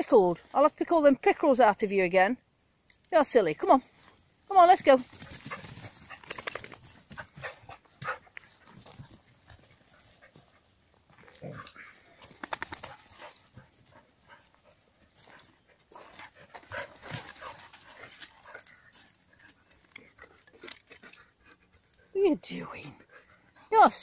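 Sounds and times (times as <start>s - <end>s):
dog paws clicking and rustling: 4.1s - 22.1s.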